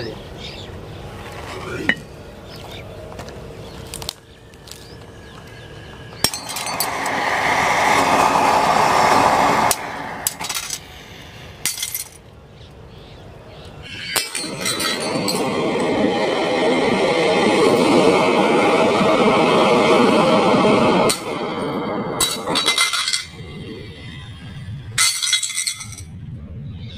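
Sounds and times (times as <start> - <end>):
firework fountain hissing: 6.2 - 11.8, 13.9 - 23.3.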